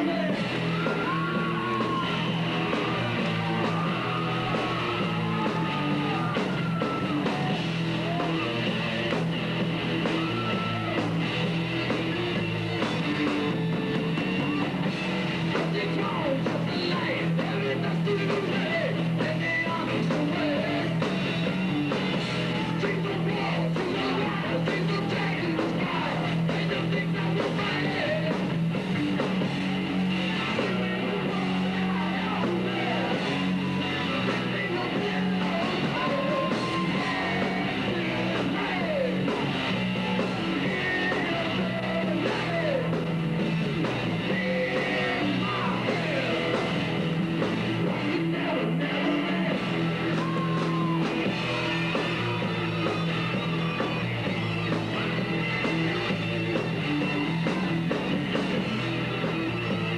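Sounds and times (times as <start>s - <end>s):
bass guitar: 0.0s - 59.9s
drums: 0.0s - 59.9s
electric guitars: 0.0s - 59.9s
person singing: 15.5s - 21.0s, 22.6s - 28.5s, 30.5s - 39.5s, 40.2s - 43.0s, 44.1s - 46.8s, 47.7s - 52.4s.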